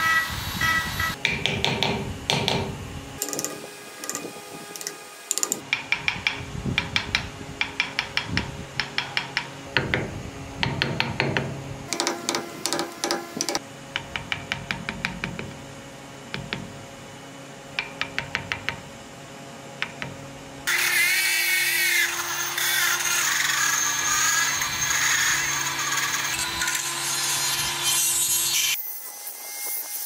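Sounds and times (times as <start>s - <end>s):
chisel clicking into wood: 3.2s - 15.6s, 17.8s - 18.8s.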